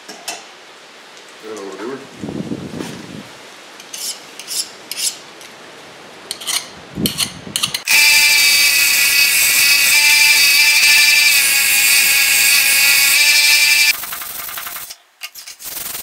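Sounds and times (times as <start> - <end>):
high-pitched hum: 7.9 - 14.0.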